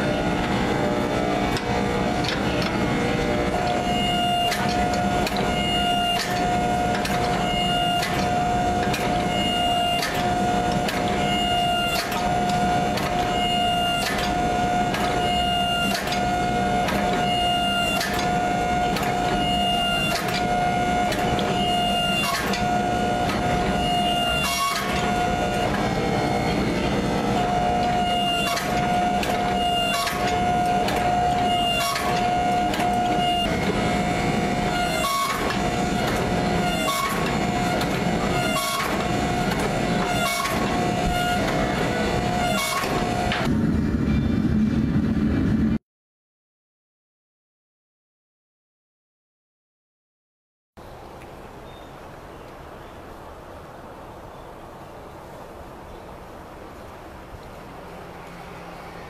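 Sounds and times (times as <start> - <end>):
hydraulic pump whine: 0.0 - 45.8, 55.6 - 59.0.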